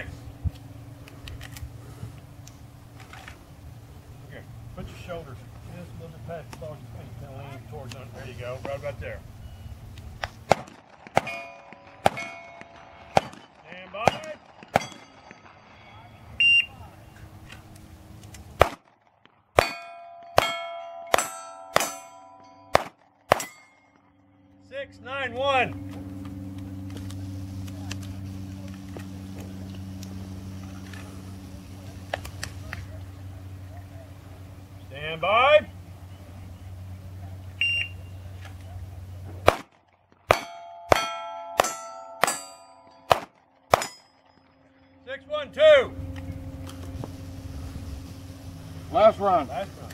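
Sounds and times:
pistol shots: 10.2s - 15.5s, 18.6s - 23.7s, 39.4s - 44.4s
steel plate ringing clang: 11.2s - 16.4s, 19.6s - 24.1s, 40.3s - 45.1s
shot timer beep: 16.4s - 16.8s, 37.6s - 38.2s.

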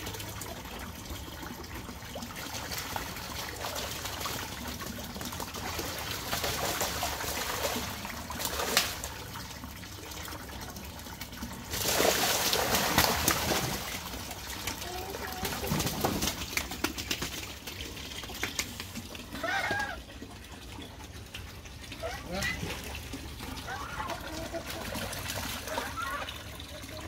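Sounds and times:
water trickling from a pipe: 0.0s - 27.0s
geese splashing in water: 2.2s - 9.6s, 11.2s - 20.3s, 21.5s - 27.0s
goose beating wings in water: 11.7s - 20.0s.

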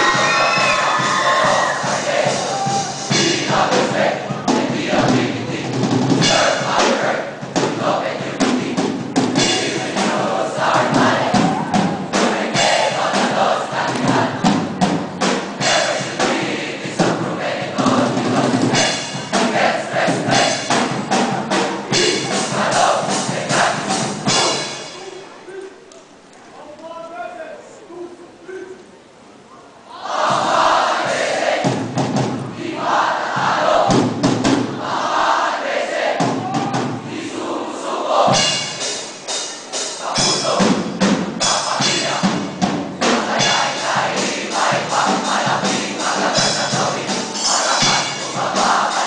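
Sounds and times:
loud music with drum beat: 0.0s - 25.1s, 30.2s - 35.2s, 36.2s - 37.1s, 38.2s - 49.0s
crowd chanting and shouting: 0.0s - 26.2s, 29.7s - 49.0s
sharp percussive hits: 38.3s - 49.0s.

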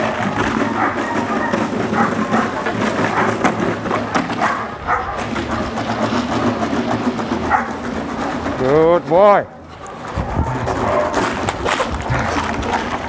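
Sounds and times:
dogs barking: 0.0s - 6.1s, 7.3s - 8.0s
steady background noise: 0.0s - 13.0s.

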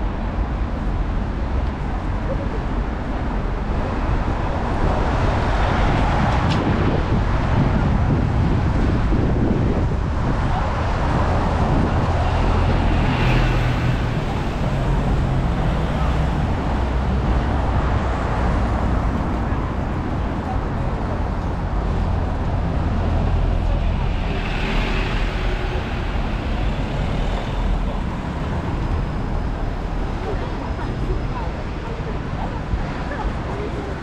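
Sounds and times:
tyre noise from passing vehicles: 0.0s - 34.0s
vehicle engines rumbling: 0.0s - 34.0s.

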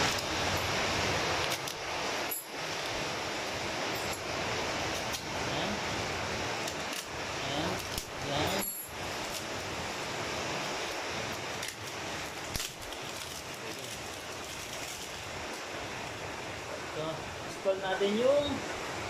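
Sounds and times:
steady background hiss: 0.0s - 19.0s
plastic wrapping crinkling: 9.0s - 9.7s, 11.5s - 15.4s.

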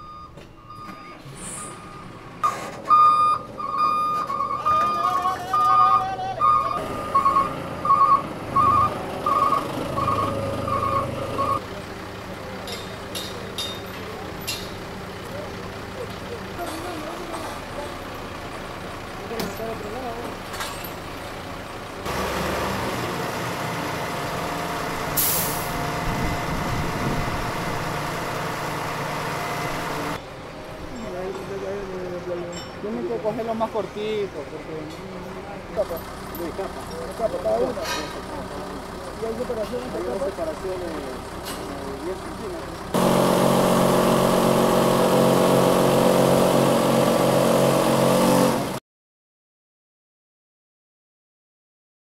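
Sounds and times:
diesel crane engine running: 0.0s - 48.8s
sharp hiss of released air: 25.2s - 25.8s.

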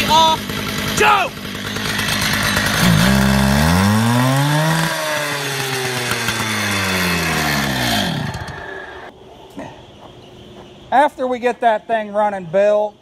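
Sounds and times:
cut-off saw revving: 0.0s - 9.1s.

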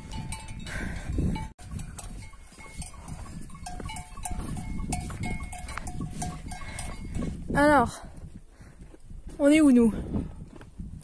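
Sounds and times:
sheep bells clanking: 0.0s - 7.6s.

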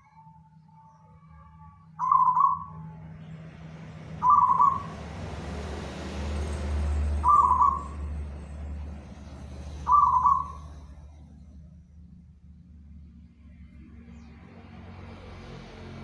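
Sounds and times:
dove cooing: 2.0s - 2.8s, 4.2s - 5.0s, 9.8s - 11.0s.

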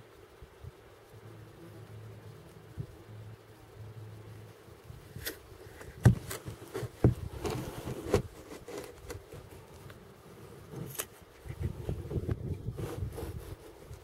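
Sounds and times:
camera handling knocks: 5.8s - 6.4s.

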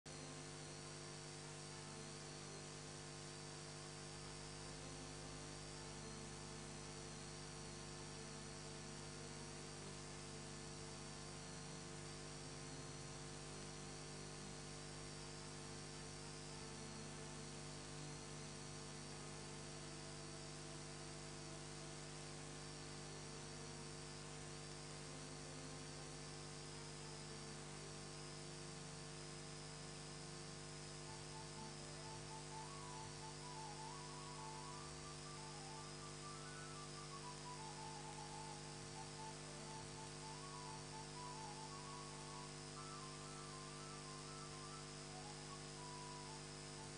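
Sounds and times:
electrical hum: 0.1s - 46.9s
faint wavering high whine: 0.1s - 46.9s
faint hiss: 31.0s - 46.9s.

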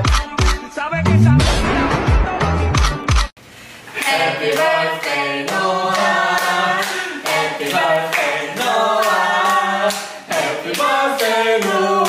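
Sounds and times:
small group singing a celebration song: 3.9s - 12.0s
hand claps: 4.0s - 11.8s.

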